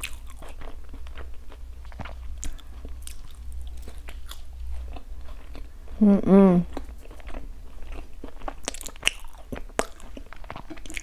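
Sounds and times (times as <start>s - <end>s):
chewing rice cake: 0.0s - 6.0s, 6.6s - 11.0s
low steady hum: 0.0s - 11.0s
wet mouth clicks and smacks: 8.5s - 11.0s.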